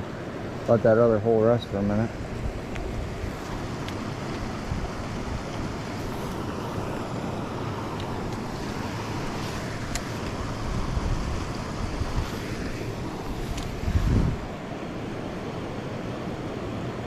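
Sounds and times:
river water rushing: 0.0 - 17.0
wind rumbling on microphone: 1.8 - 15.3.

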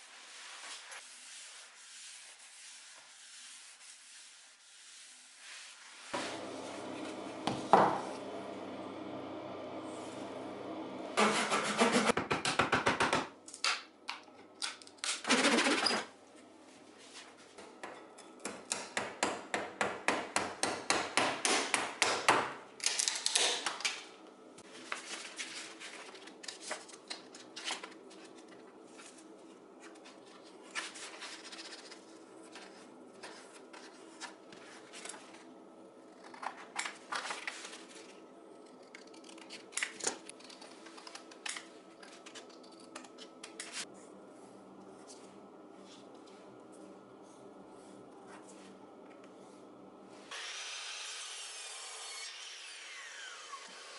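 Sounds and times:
sandpaper rustling: 0.0 - 6.6
hand saw cutting wood: 11.2 - 12.2.

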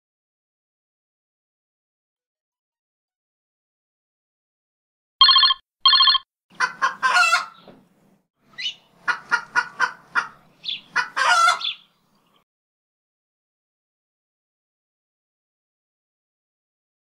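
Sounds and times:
short electronic tones: 5.2 - 6.2
hen clucking and squawking: 6.5 - 7.7, 8.5 - 11.9.

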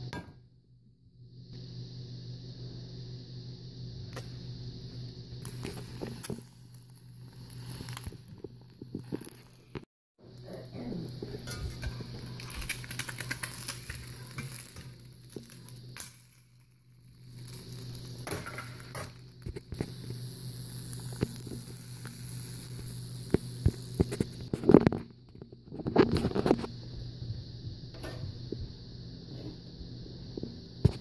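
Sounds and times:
egg sizzling in a skillet: 5.0 - 24.8
small clicks: 5.4 - 9.9.

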